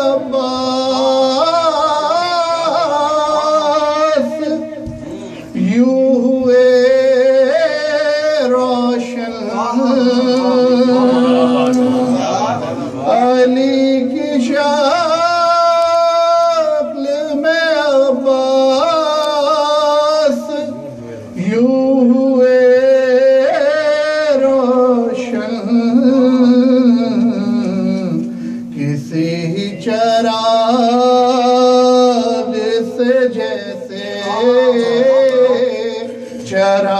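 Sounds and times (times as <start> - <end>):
steady held drone tone: 0.0 - 15.5
man singing melismatic verse: 0.0 - 36.9.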